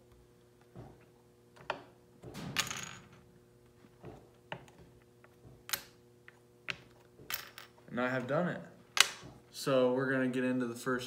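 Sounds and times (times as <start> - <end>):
pegs clattering rattle: 6.7 - 7.8.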